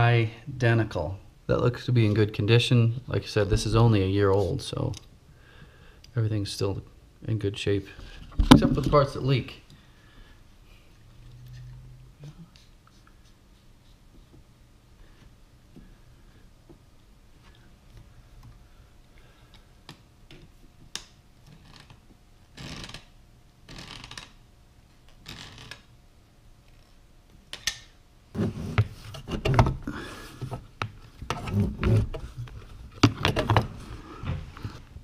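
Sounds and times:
knocks and scraping: 0:08.0 - 0:09.3, 0:28.4 - 0:34.9.

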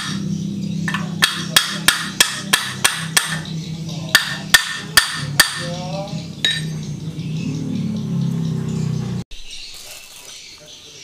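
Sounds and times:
hammer striking metal pipe: 0:00.0 - 0:03.5, 0:04.1 - 0:05.8, 0:06.4 - 0:06.8.

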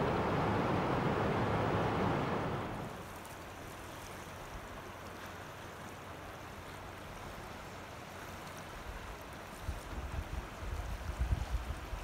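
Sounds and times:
small water splashes: 0:02.8 - 0:11.0.

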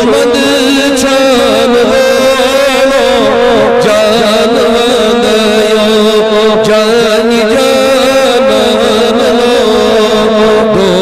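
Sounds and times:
man singing devotional song: 0:00.0 - 0:11.0.

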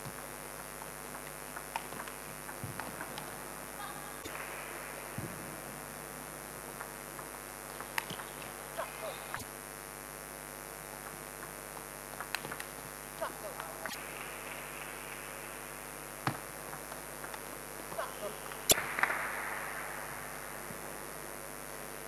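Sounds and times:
steady electrical hum: 0:00.0 - 0:22.0
table tennis ball clicks: 0:11.0 - 0:12.8.

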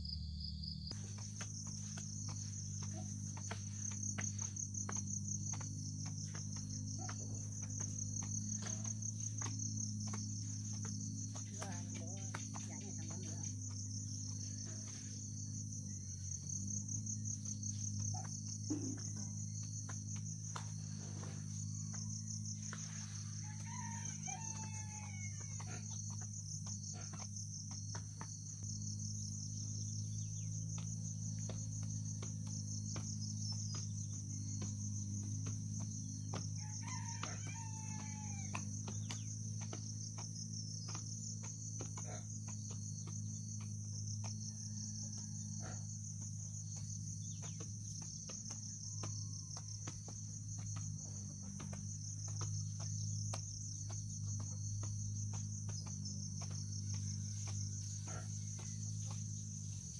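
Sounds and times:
insects trilling: 0:00.0 - 0:59.9
rooster crowing: 0:21.2 - 0:26.3, 0:36.1 - 0:39.8, 0:44.4 - 0:46.0.

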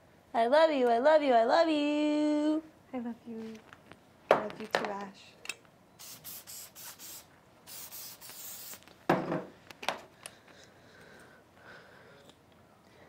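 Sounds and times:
aerosol spray can hissing: 0:06.0 - 0:08.9.

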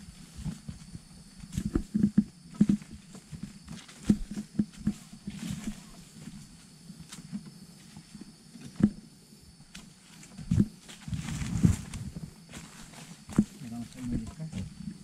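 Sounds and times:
footsteps on dry leaves: 0:09.8 - 0:14.8.

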